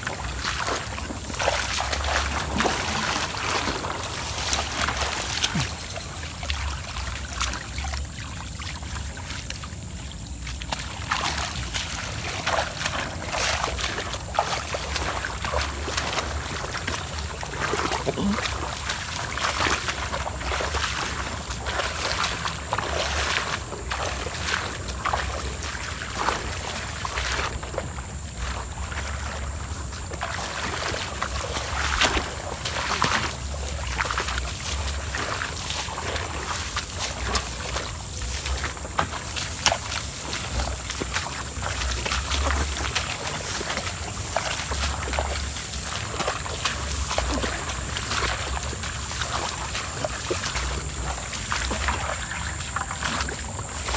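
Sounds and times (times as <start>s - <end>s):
squelching footsteps in water: 0.0s - 53.9s.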